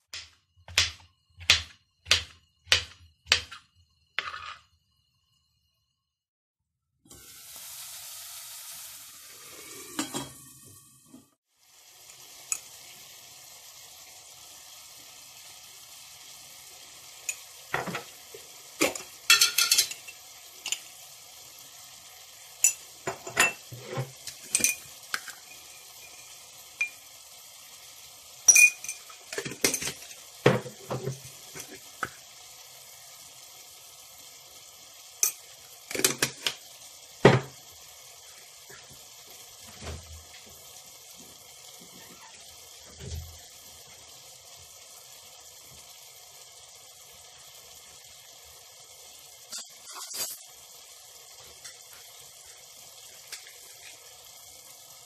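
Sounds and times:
food sizzling in a pot: 7.0 - 55.0
metal spoon clinking against pot: 18.8 - 20.8.

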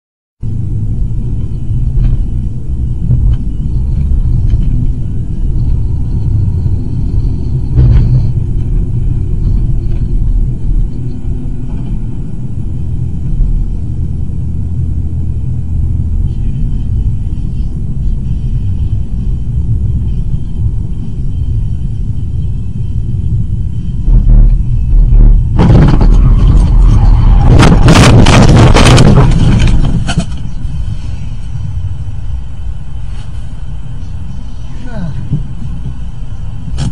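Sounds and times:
car road and engine rumble: 0.4 - 36.9
loud thud: 7.7 - 8.5, 24.0 - 30.4.

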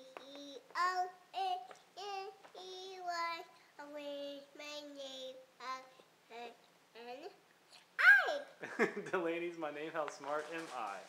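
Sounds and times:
toddler girl singing: 0.0 - 7.4.

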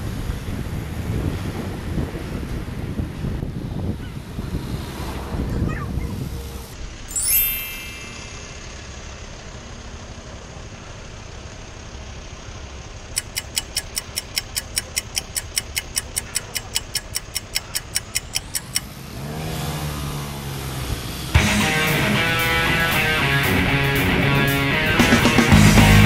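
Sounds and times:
idling street traffic hum: 0.0 - 7.1, 8.6 - 26.0
crossing signal beeping rapidly: 13.2 - 18.8
scooter engine revving: 17.6 - 22.4.

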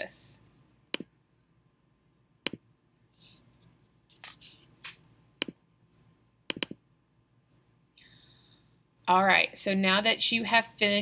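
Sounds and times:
computer mouse clicks: 6.5 - 6.8.

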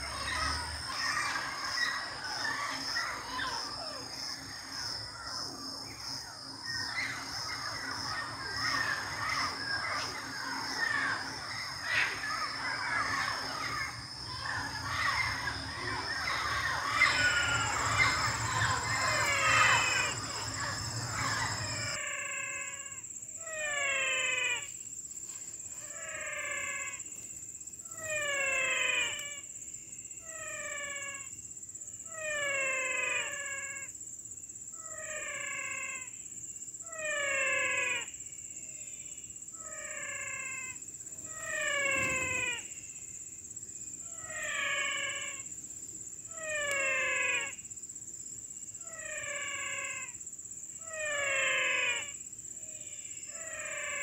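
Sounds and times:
high-pitched insect hum: 0.0 - 54.0
animal call falling in pitch: 8.1 - 22.0, 41.3 - 42.7.

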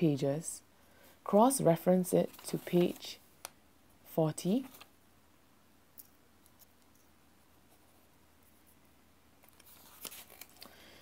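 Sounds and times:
book pages turning: 2.2 - 3.2, 9.4 - 10.7.

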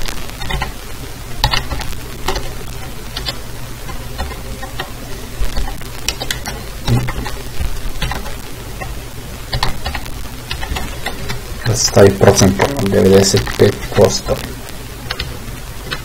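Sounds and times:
low hum: 0.0 - 16.0
microphone hiss: 0.0 - 16.0
computer keyboard keystrokes: 0.4 - 0.7, 1.4 - 2.5.

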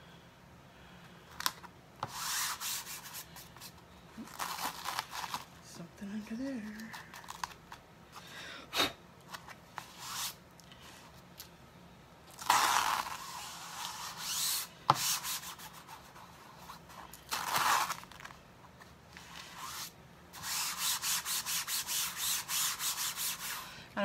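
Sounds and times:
hand rubbing stencil on canvas: 2.1 - 3.7, 19.2 - 23.6.

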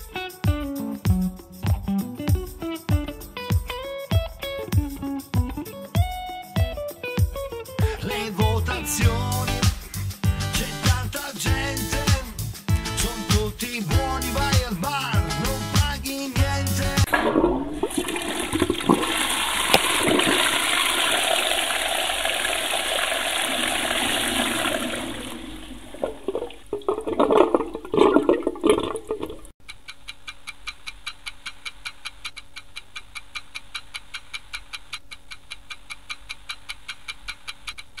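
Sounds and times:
toilet flushing: 17.1 - 29.4
clock ticking: 29.6 - 38.0.

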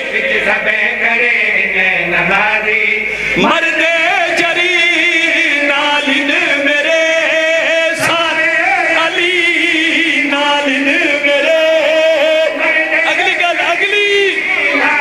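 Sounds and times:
men chanting in unison: 0.0 - 15.0
lead male voice: 7.9 - 15.0.

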